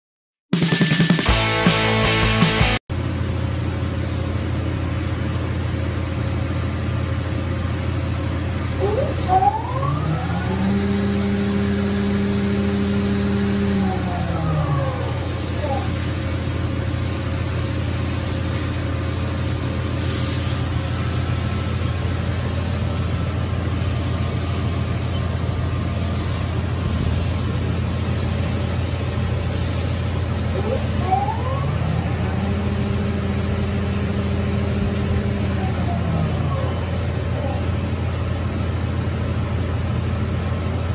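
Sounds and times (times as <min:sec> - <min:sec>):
spindle whine: 0:06.4 - 0:40.8
machine low hum: 0:20.6 - 0:40.9.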